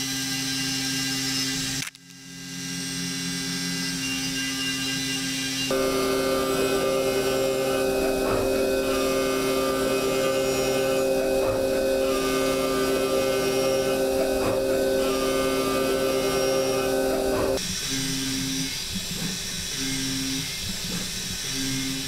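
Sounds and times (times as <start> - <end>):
milling machine cutting metal: 5.7 - 17.6.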